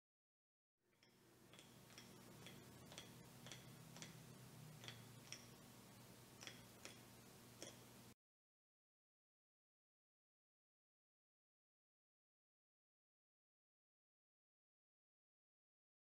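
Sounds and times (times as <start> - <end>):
faint room hum: 0.9 - 8.2
soft sharp clicks: 1.0 - 5.6, 6.4 - 7.9.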